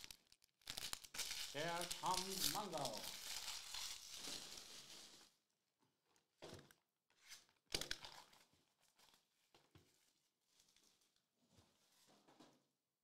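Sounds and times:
plastic wrap crinkling and ripping: 0.0 - 5.4, 7.2 - 9.3.

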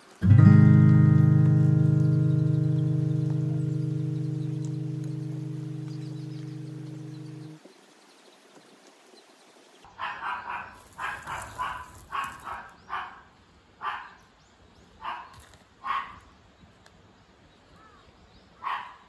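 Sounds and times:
dog barking: 9.9 - 14.2, 15.0 - 16.2, 18.6 - 19.0.

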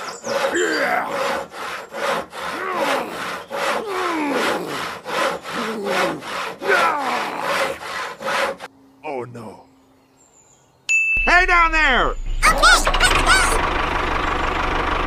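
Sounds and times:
saw cutting through wood: 0.0 - 8.7.

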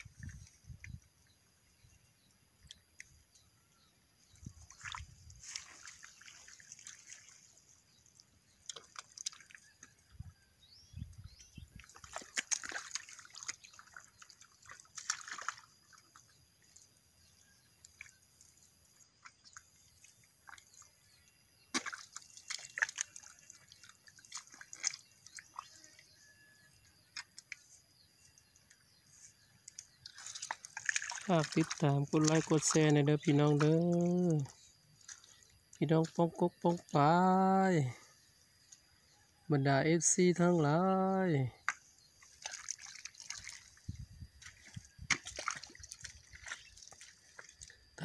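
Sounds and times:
mud and water squelching: 0.0 - 48.0.

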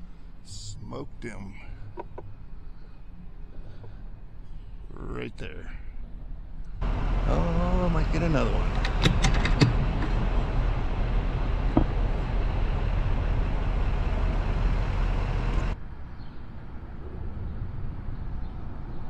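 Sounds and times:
road traffic rumble: 6.8 - 15.8.

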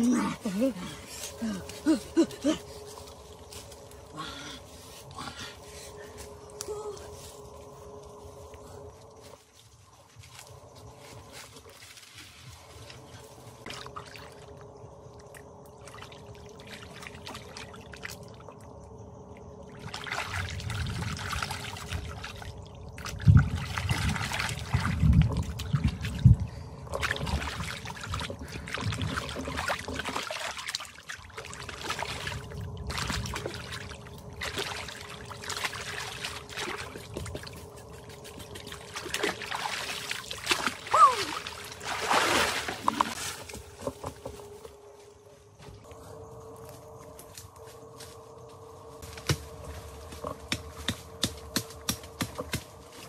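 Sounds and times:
water sloshing and splashing: 11.0 - 44.6
heavy splashes and thuds: 38.6 - 43.3.

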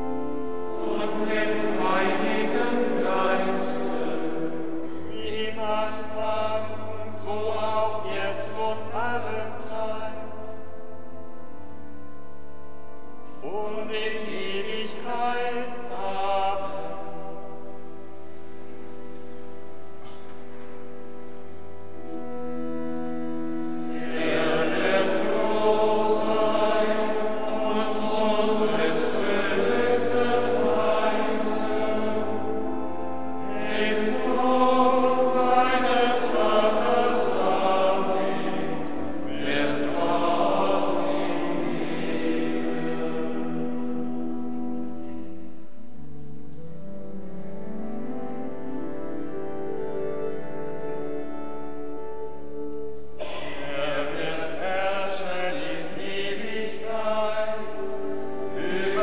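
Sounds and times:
organ accompaniment: 0.0 - 59.0
men's choir chanting: 0.8 - 10.0, 23.8 - 32.6, 33.4 - 43.9, 53.2 - 59.0.

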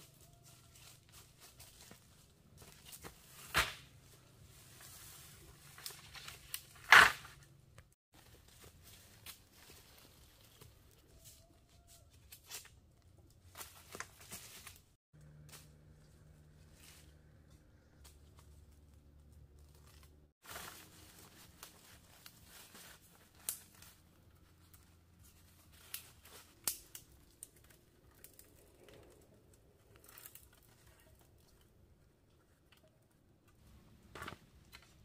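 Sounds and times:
dry leaf litter rustling: 19.6 - 29.1.

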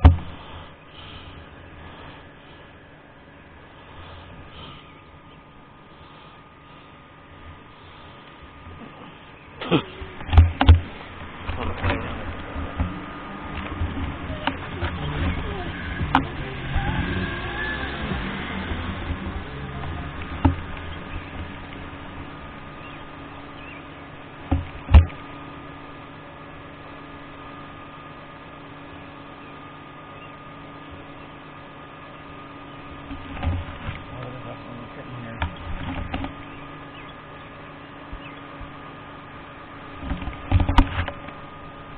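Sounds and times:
knocks and thumps: 0.0 - 0.4, 10.2 - 16.4, 18.0 - 21.6, 24.5 - 25.2, 40.0 - 41.2
mechanical hum: 0.0 - 41.9.

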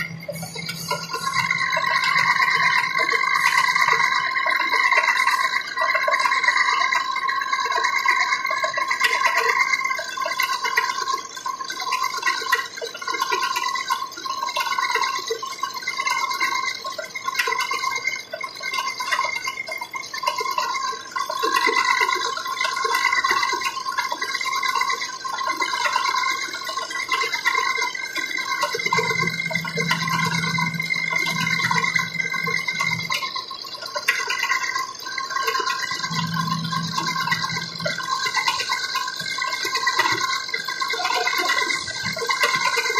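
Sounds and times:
low hum: 0.0 - 5.6, 28.5 - 42.9
gear-cutting machine whine: 0.0 - 42.9.

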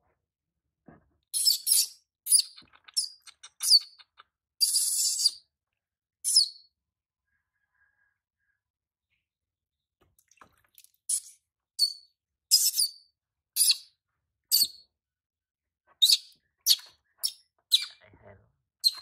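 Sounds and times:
baby monkey squealing: 1.4 - 5.4, 13.6 - 13.8, 16.0 - 18.0.

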